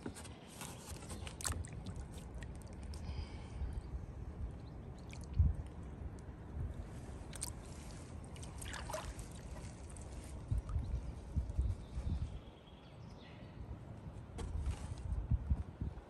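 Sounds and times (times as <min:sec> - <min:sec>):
water sloshing and trickling: 0:00.0 - 0:03.3, 0:04.4 - 0:11.8.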